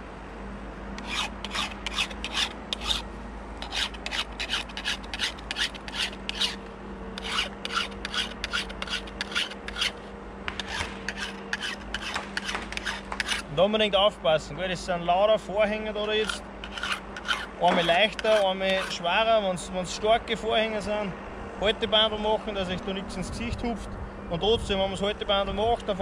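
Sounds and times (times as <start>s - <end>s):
file scraping chainsaw chain: 1.0s - 13.5s, 16.0s - 19.1s.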